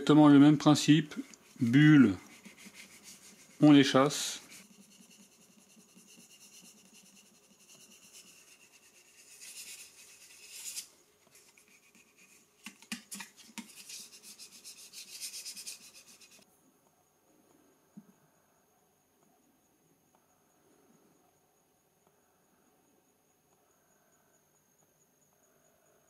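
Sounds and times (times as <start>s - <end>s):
plastic card rubbing on screen film: 0.8s - 16.4s.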